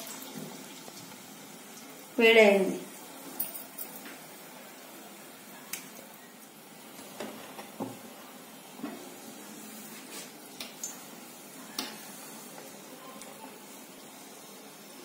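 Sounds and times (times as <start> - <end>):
hot oil sizzling: 0.0 - 15.0.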